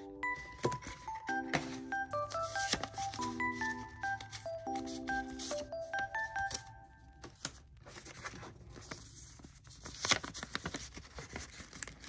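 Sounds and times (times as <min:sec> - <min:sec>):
paper envelopes rustling: 0:00.2 - 0:12.0.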